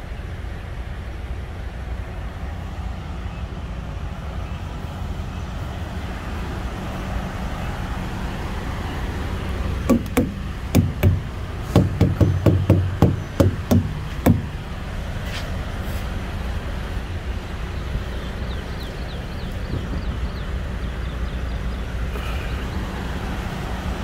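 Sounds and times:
steady low hum: 0:00.0 - 0:24.0
dull knocks on tires: 0:09.9 - 0:14.6.

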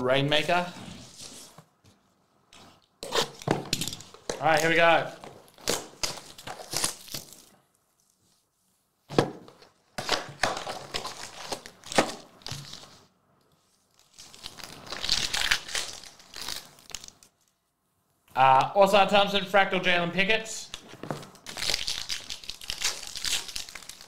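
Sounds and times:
packaging tearing and crinkling: 0:03.0 - 0:07.6, 0:10.0 - 0:13.0, 0:13.9 - 0:17.3, 0:21.3 - 0:24.0.

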